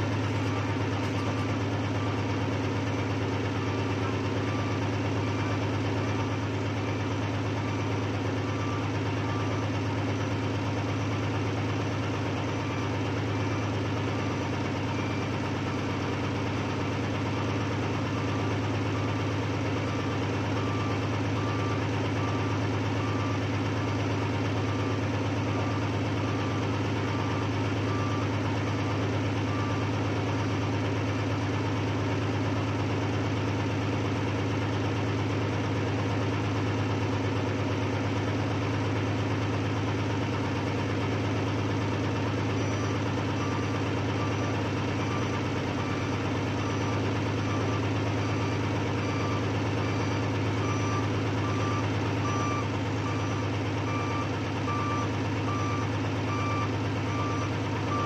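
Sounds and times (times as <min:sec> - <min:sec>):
backhoe engine running: 0:00.0 - 0:58.0
faint repeating beep: 0:12.4 - 0:16.1, 0:41.7 - 0:58.0.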